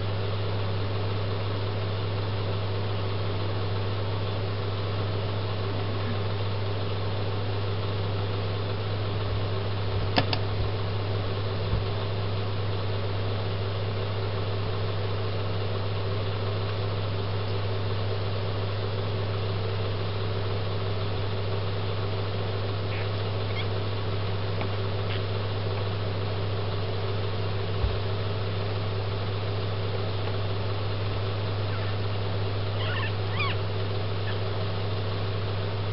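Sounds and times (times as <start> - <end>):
low mechanical hum: 0.0 - 35.9
sharp click: 10.2 - 10.4.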